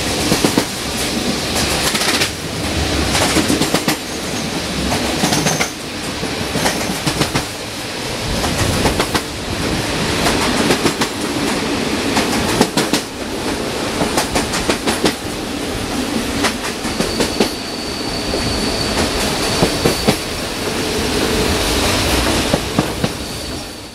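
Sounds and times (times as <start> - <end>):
train wheels clickety-clack: 0.0 - 23.9
high wheel squeal: 16.7 - 21.0, 21.6 - 23.9.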